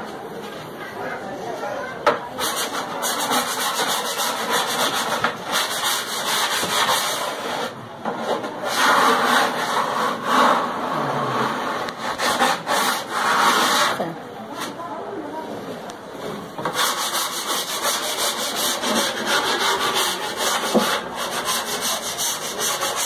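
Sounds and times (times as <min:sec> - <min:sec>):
sanding block scrubbing wood: 0:02.4 - 0:07.7, 0:08.6 - 0:10.8, 0:11.5 - 0:14.0, 0:16.7 - 0:23.0.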